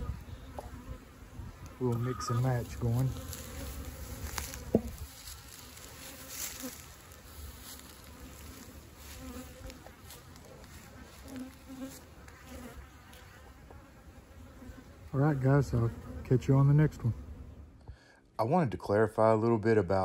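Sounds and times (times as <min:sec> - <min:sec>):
bees buzzing: 0:00.0 - 0:17.8.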